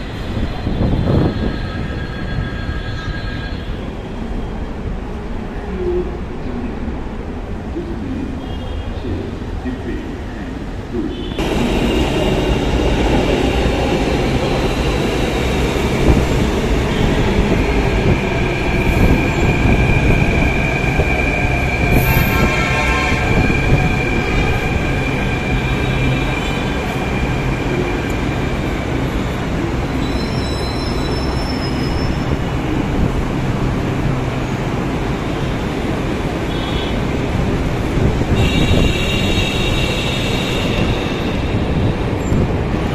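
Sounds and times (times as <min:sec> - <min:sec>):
train rail rumble: 0:09.3 - 0:42.9.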